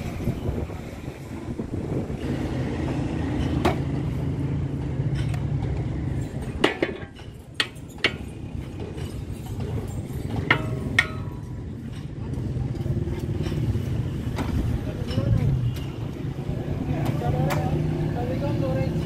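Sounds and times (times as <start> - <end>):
metal clinks and knocks: 3.2 - 15.8.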